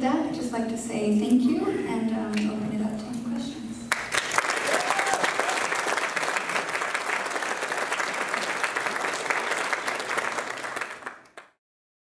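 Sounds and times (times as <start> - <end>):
audience applauding: 3.9 - 11.6.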